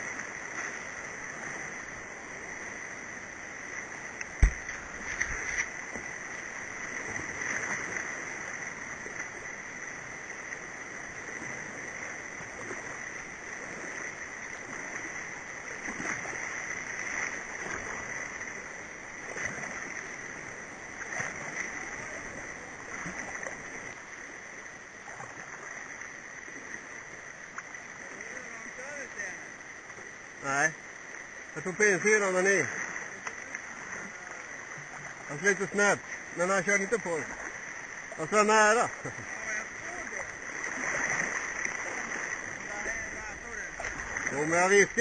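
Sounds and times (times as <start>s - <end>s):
water splashes: 0.0s - 45.0s
whitewater rapids rushing: 31.6s - 45.0s.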